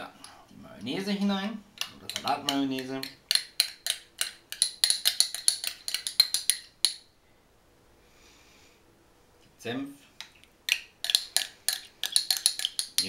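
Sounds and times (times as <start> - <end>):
metal spoon clinking on glass: 1.8 - 7.0, 10.7 - 13.0.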